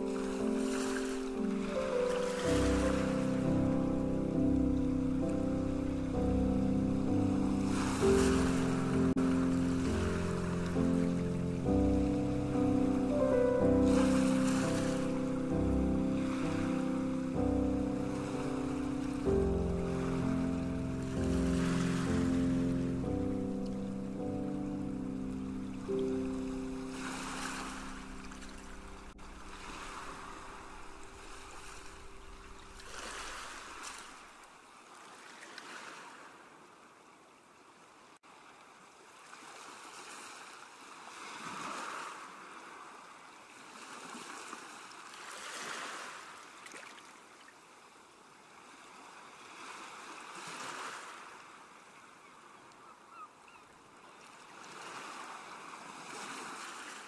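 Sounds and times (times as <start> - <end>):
soft background music: 0.0 - 34.1
ocean waves washing in: 0.0 - 36.4, 54.2 - 57.0.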